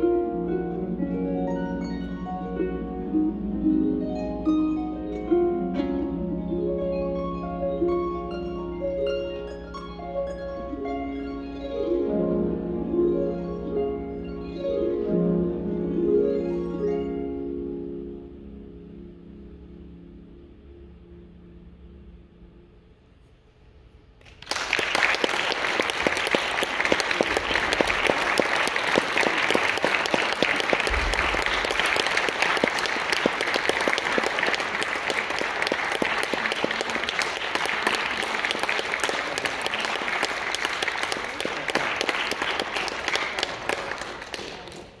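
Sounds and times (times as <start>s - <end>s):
pedal harp notes: 0.0s - 22.8s
audience applauding: 24.2s - 45.0s.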